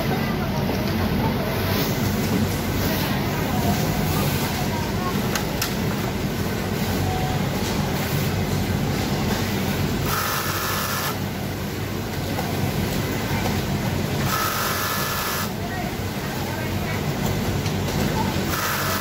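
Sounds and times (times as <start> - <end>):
sewing machines clattering: 16.7 - 19.0.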